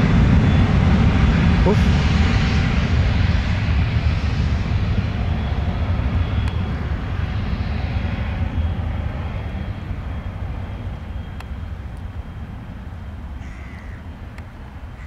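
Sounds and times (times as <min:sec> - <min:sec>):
jet engine rumble: 0:00.0 - 0:15.0
faint high whine: 0:05.0 - 0:15.0.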